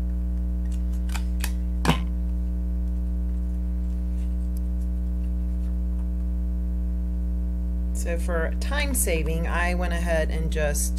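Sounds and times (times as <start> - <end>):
electrical hum: 0.0 - 10.9
stapler clicks: 0.7 - 2.0
stapler snapping: 0.7 - 2.0.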